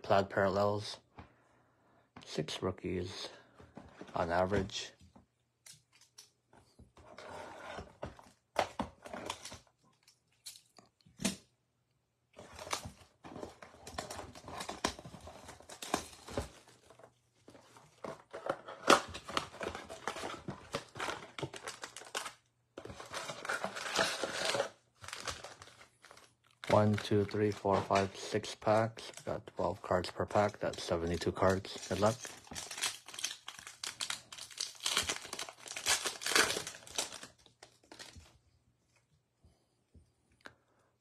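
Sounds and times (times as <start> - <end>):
foil packs crinkling and tearing: 18.4 - 22.4, 23.0 - 29.2, 30.3 - 38.2.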